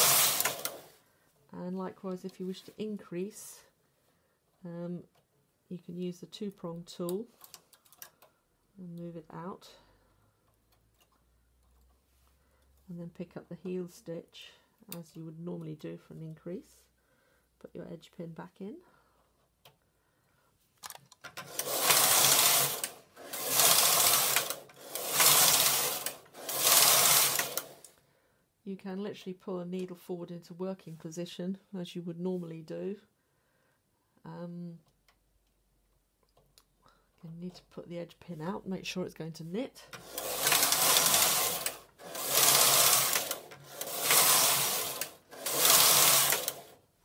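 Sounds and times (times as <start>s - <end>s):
knitting machine carriage clatter: 0.0s - 0.9s, 21.2s - 27.9s, 40.0s - 46.8s.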